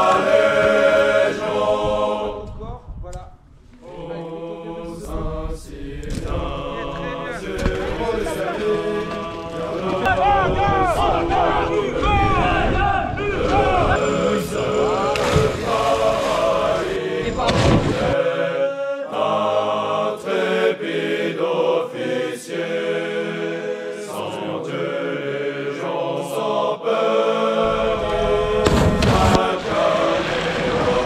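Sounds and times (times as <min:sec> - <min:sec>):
choir singing a chant: 0:00.0 - 0:02.6, 0:03.8 - 0:31.0
water splash: 0:15.0 - 0:18.2, 0:28.5 - 0:31.0
rush of noise: 0:27.7 - 0:31.0.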